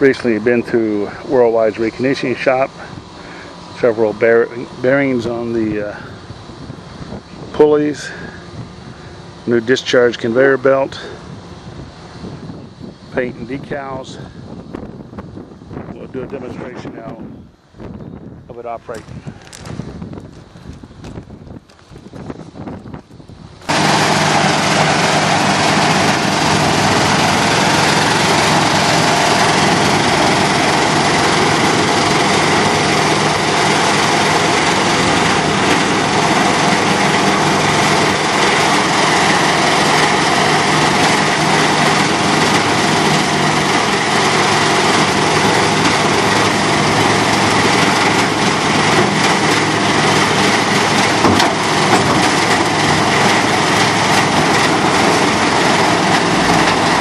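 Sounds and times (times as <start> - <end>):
tub grinder running: 23.6 - 57.0.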